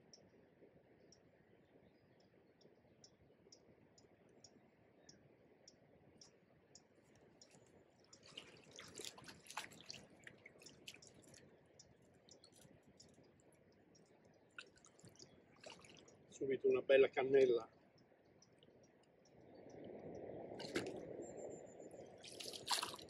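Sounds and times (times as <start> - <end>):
faint regular ticking: 0.0 - 9.1, 10.0 - 20.6
fish splashing at surface: 8.2 - 11.4, 14.6 - 16.1, 20.6 - 21.0, 22.2 - 23.0.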